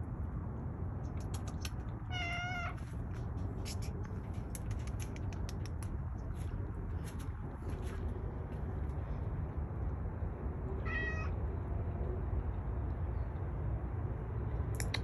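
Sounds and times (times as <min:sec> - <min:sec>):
cat meowing: 0:02.1 - 0:02.8, 0:10.8 - 0:11.4.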